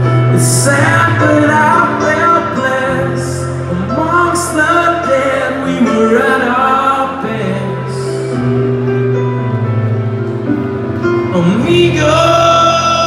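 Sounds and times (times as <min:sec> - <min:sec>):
person singing: 0:00.0 - 0:08.5, 0:11.1 - 0:13.0
piano chords: 0:00.0 - 0:13.0.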